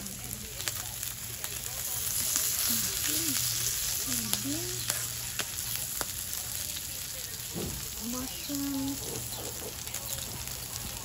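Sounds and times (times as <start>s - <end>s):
meat sizzling on grill pan: 0.0s - 11.0s.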